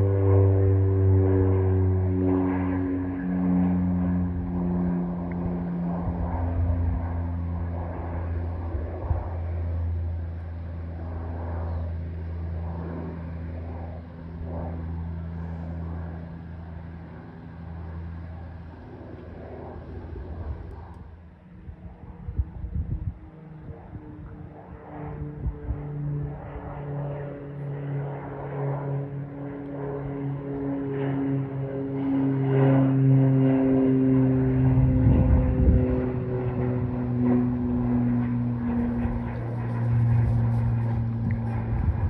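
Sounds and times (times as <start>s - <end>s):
airplane engines droning: 0.0s - 42.0s.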